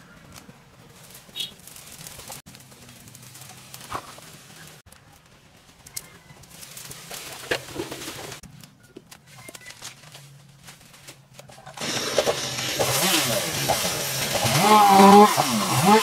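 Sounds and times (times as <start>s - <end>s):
rustling: 0.0s - 15.2s
small engine running loudly: 11.8s - 16.0s.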